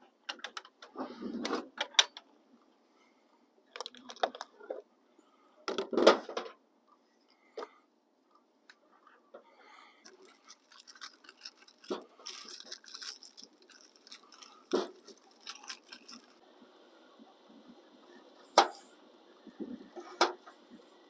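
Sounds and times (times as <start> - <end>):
packaging crinkling and rustling: 3.7 - 4.7, 10.0 - 16.4.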